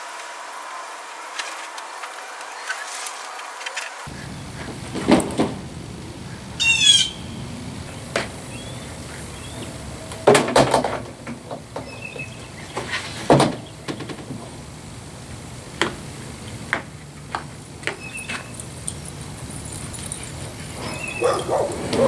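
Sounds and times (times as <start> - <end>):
bird chirping: 6.3 - 9.8, 11.8 - 12.9, 17.9 - 20.1, 20.7 - 22.0.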